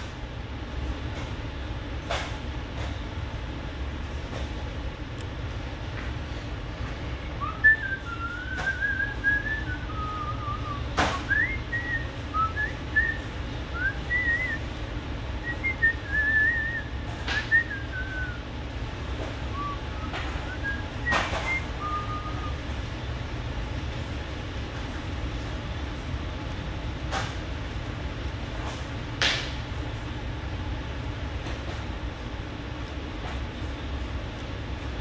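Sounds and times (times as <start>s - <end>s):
person whistling a tune: 7.4s - 14.7s, 15.4s - 18.4s, 19.5s - 22.6s.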